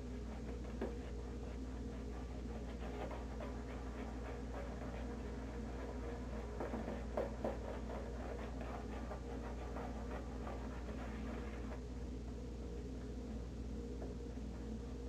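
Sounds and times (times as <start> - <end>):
shaving brush swishing lather: 0.3 - 11.8.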